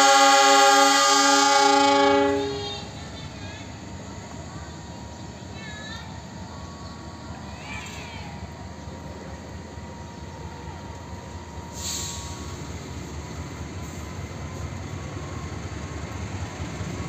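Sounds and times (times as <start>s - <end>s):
diesel locomotive engine rumble: 0.0s - 17.0s
brief hiss: 11.7s - 12.8s.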